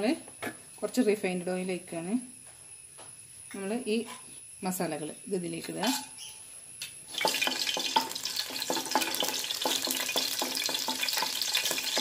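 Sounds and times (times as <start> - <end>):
spices sizzling in hot oil: 7.0 - 12.0.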